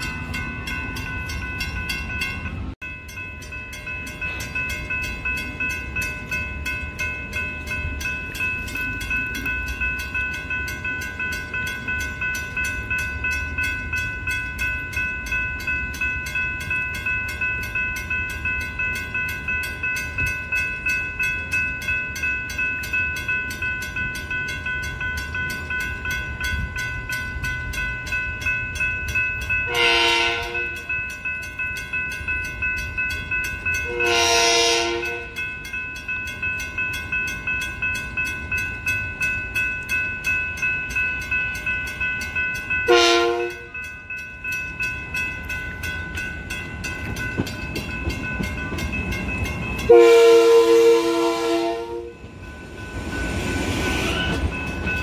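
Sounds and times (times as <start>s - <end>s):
crossing bell ringing: 0.0s - 55.0s
train rumble: 0.0s - 55.0s
train horn blasts: 29.7s - 30.8s, 33.9s - 35.4s, 42.9s - 43.7s, 49.9s - 52.2s.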